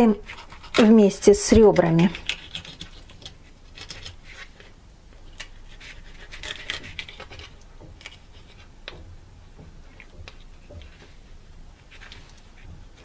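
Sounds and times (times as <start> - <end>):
knife clicking and scraping bones: 0.3 - 1.0, 2.1 - 4.2, 5.4 - 9.0.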